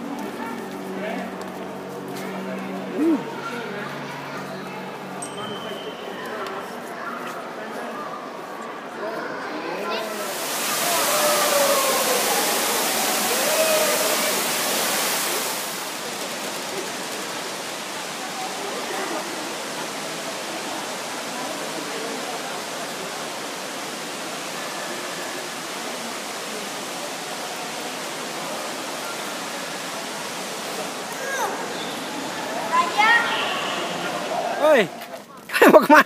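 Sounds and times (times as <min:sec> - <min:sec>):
faint voices: 0:00.0 - 0:35.5
waterfall rushing: 0:09.9 - 0:35.0.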